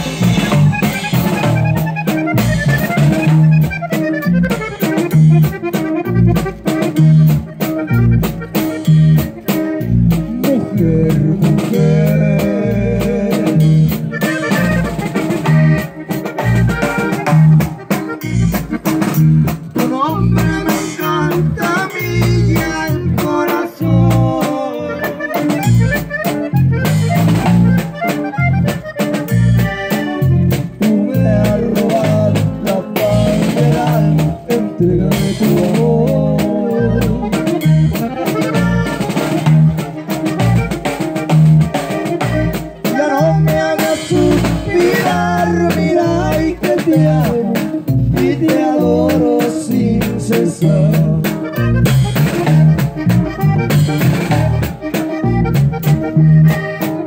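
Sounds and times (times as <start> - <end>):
band music with drums and bass: 0.0 - 57.0.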